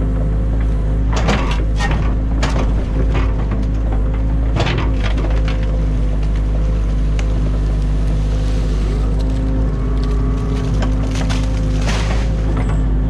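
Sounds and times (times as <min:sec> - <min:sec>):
excavator diesel engine: 0:00.0 - 0:13.0
bucket crunching sticks and mud: 0:06.1 - 0:12.6.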